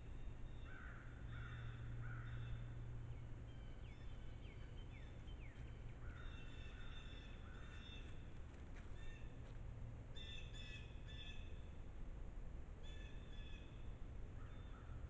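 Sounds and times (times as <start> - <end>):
steady low hum: 0.0 - 15.0
crow cawing: 0.7 - 2.6.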